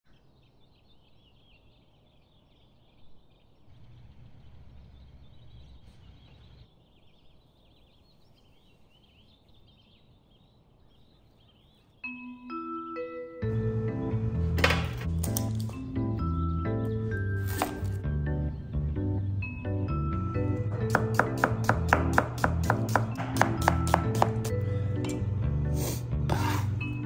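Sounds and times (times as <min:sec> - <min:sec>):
outdoor background noise: 0:00.0 - 0:12.2
small birds chirping: 0:00.0 - 0:12.4
music with held notes: 0:12.0 - 0:27.0.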